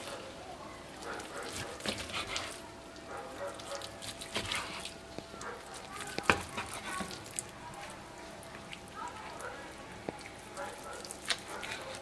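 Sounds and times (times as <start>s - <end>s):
knife slicing meat: 1.4s - 2.6s, 6.2s - 7.2s.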